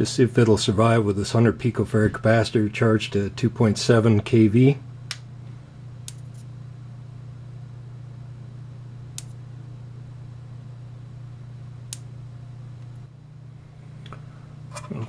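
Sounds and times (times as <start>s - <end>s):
sharp spark snaps: 6.0s - 6.5s, 9.1s - 9.4s, 11.9s - 12.2s
electric fly swatter buzzing: 9.1s - 9.5s.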